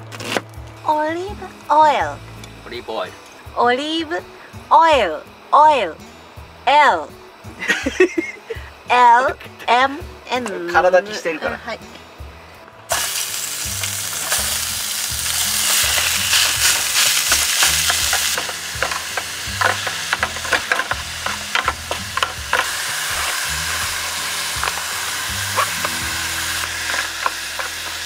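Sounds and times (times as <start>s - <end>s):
meat sizzling in oil: 12.9s - 28.0s
spatula scraping and tapping tin: 15.6s - 24.0s, 25.6s - 28.0s.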